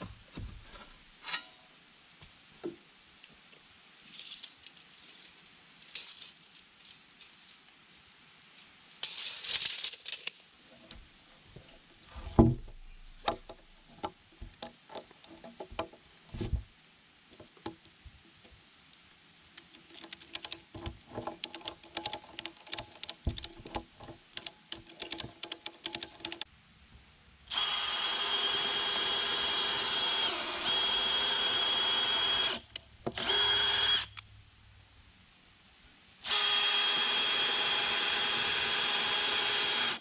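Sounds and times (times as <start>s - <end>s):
power drill whining: 27.5s - 34.2s, 36.2s - 40.0s.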